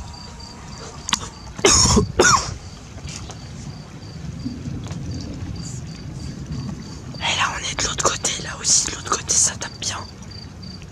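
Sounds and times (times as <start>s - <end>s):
person coughing: 1.6s - 2.6s.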